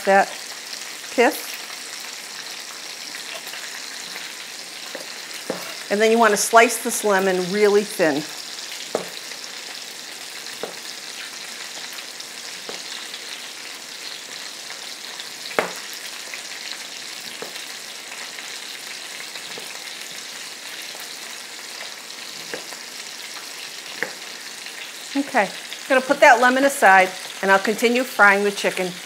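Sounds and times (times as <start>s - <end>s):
chicken sizzling in frying pan: 0.0s - 29.0s
knife tapping plastic cutting board: 8.9s - 9.2s, 15.6s - 15.8s.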